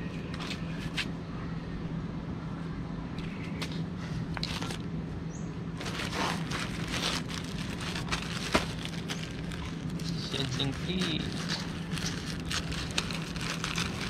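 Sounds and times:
steady low hum: 0:00.0 - 0:14.0
plastic pouch crinkling: 0:05.8 - 0:14.0.

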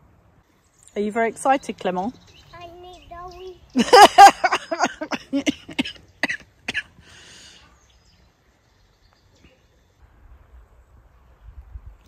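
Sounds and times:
person coughing: 0:04.5 - 0:07.0
breathy hiss: 0:07.0 - 0:07.8.

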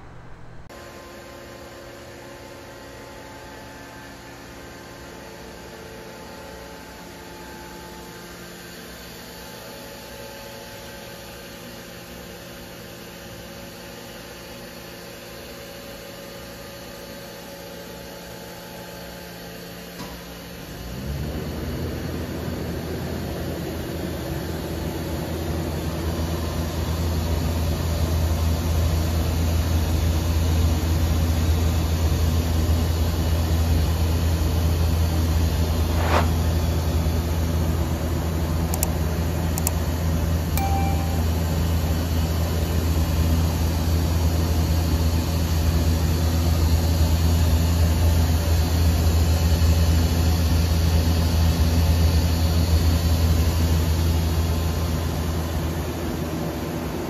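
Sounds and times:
machining center humming: 0:00.0 - 0:00.7, 0:35.5 - 0:44.1.

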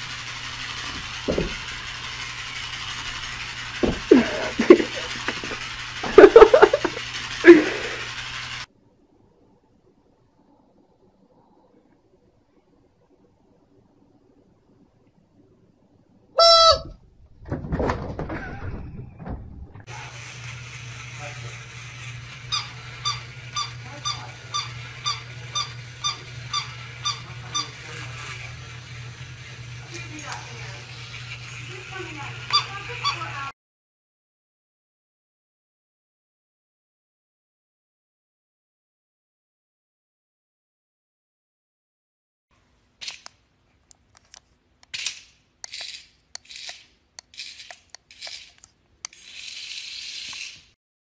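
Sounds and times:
toy kitten squeaking: 0:16.4 - 0:16.9, 0:22.5 - 0:27.8, 0:32.5 - 0:33.4.

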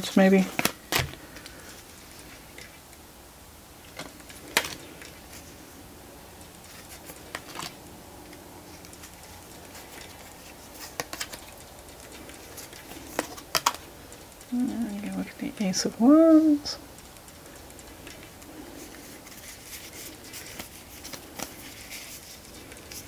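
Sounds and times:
cards clicking and snapping: 0:00.5 - 0:01.6, 0:03.9 - 0:05.2, 0:06.5 - 0:14.5, 0:17.0 - 0:23.0.

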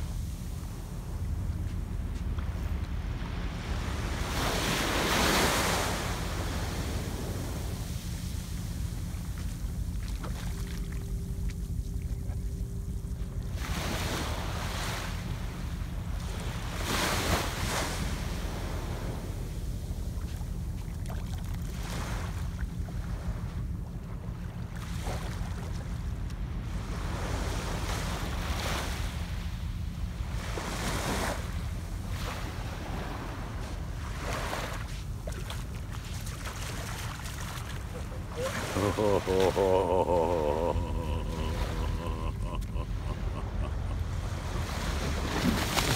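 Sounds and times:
low wind rumble on microphone: 0:00.0 - 0:39.0
small waves washing on sand: 0:01.6 - 0:11.6, 0:13.5 - 0:22.5, 0:30.3 - 0:45.9.

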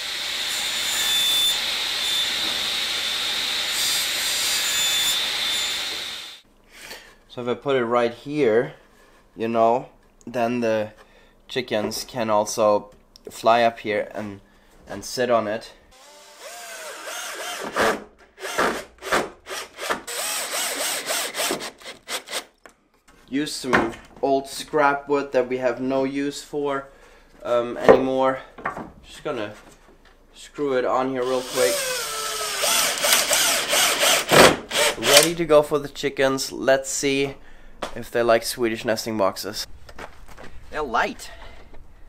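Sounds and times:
table saw cutting wood: 0:00.0 - 0:06.4, 0:16.0 - 0:22.4, 0:31.2 - 0:35.3
cordless drill driving a screw: 0:04.6 - 0:06.4, 0:16.0 - 0:18.9, 0:19.5 - 0:22.5, 0:31.2 - 0:35.3.

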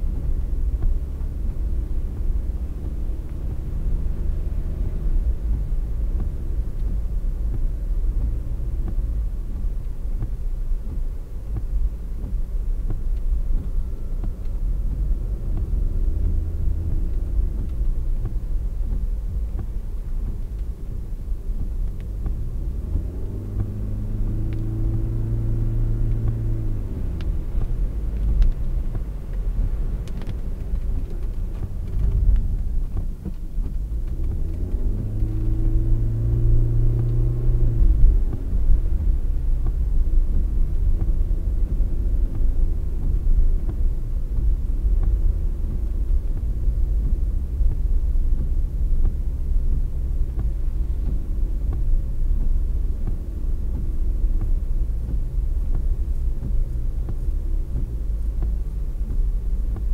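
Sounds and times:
car driving on wet road: 0:00.0 - 0:59.9.

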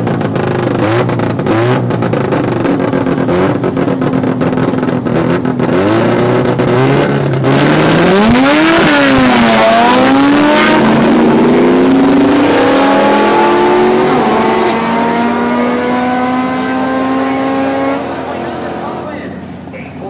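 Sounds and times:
rotary engine at full throttle: 0:00.0 - 0:20.0.

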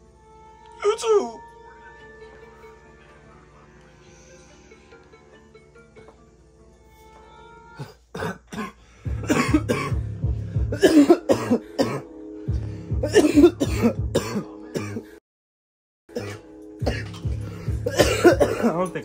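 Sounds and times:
background music with low beat: 0:00.0 - 0:15.2, 0:16.1 - 0:19.0
person coughing hard: 0:07.8 - 0:12.1, 0:12.9 - 0:15.2, 0:16.1 - 0:18.9.

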